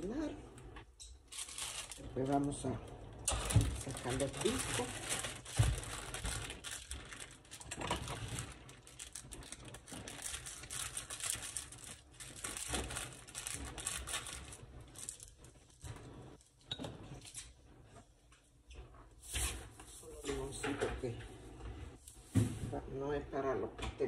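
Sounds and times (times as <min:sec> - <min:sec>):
plastic packaging crinkling: 0:00.6 - 0:16.5.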